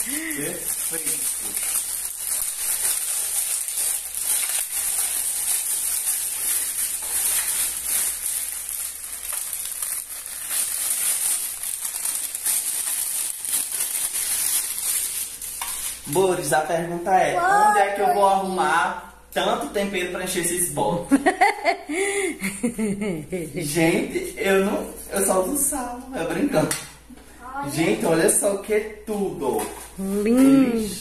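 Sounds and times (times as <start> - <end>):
plastic film crinkling: 0.0 - 16.5.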